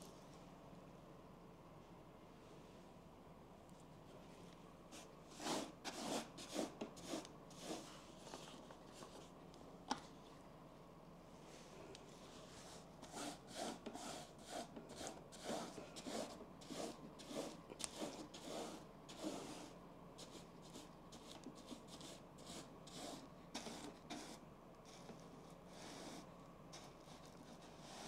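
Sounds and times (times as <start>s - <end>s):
paint brush rasping strokes: 4.9s - 9.4s, 12.1s - 28.0s.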